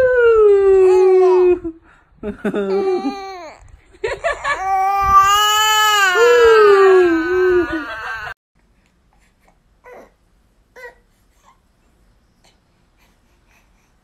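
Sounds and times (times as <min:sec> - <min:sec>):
infant crying: 0:04.4 - 0:08.4.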